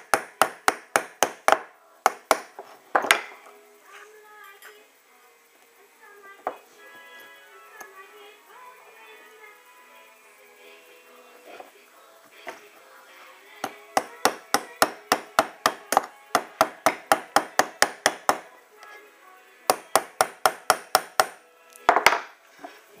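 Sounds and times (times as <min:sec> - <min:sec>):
small hammer tapping metal: 0:13.6 - 0:18.5, 0:19.7 - 0:22.2.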